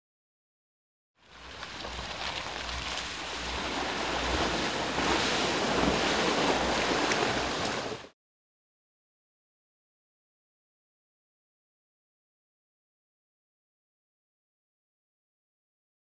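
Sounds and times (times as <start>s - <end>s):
water splashing: 1.2s - 8.1s
low vehicle rumble: 1.3s - 7.9s.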